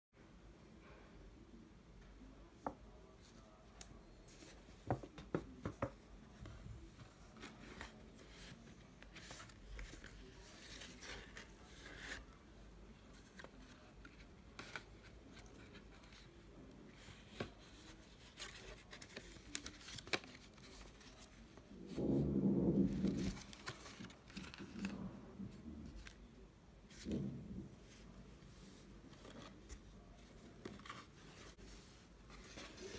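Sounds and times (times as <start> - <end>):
loud low-pitched sound: 21.7 - 23.5.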